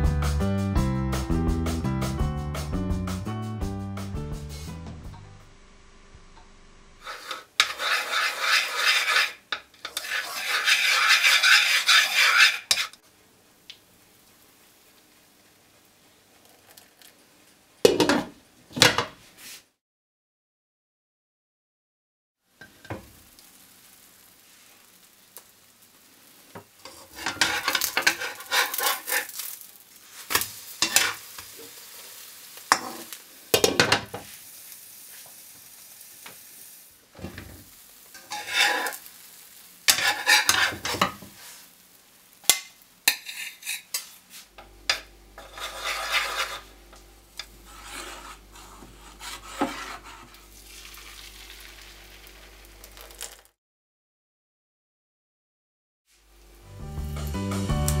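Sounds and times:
batter sizzling in pan: 5.8 - 18.4, 22.4 - 53.6
spoon scraping steel bowl: 7.0 - 13.0, 26.8 - 29.4, 30.8 - 31.3, 38.2 - 39.0, 39.9 - 41.2, 43.1 - 44.1, 44.9 - 46.8, 47.4 - 50.4
pan and lid clattering: 26.9 - 29.4, 30.3 - 31.5, 32.7 - 34.3, 39.9 - 41.3.

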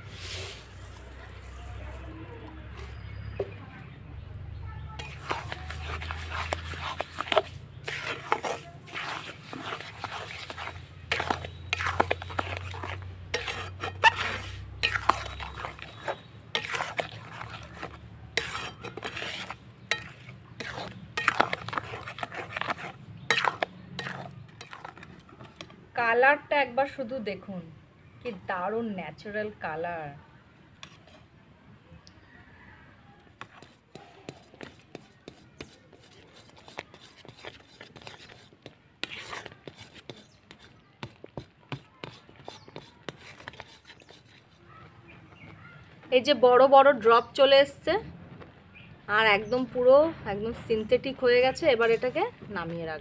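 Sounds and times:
wooden spoon scraping pan: 0.0 - 3.6, 4.8 - 25.7, 33.4 - 46.1, 51.5 - 52.7
spatula stirring thick jam: 4.8 - 25.8, 30.8 - 31.2, 33.2 - 46.3
spatula tapping steel wok: 17.8 - 22.0.

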